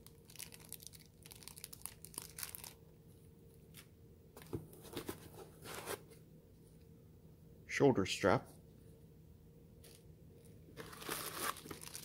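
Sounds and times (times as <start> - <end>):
plastic packaging crinkling: 0.0 - 2.8, 10.8 - 12.0.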